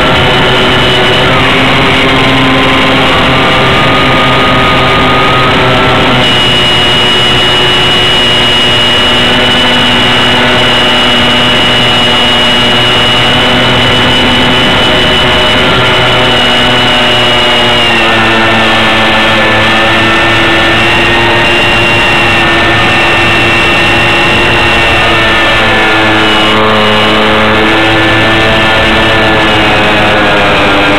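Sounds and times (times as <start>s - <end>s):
model plane motor whine: 0.0s - 30.9s.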